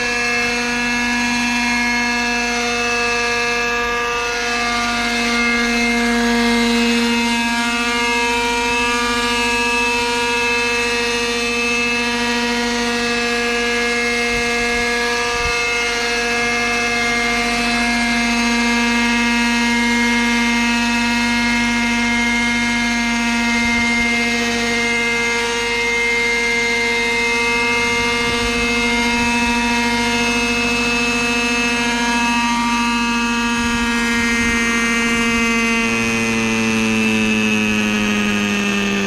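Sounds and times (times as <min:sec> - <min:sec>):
model helicopter engine buzzing: 0:00.0 - 0:39.0.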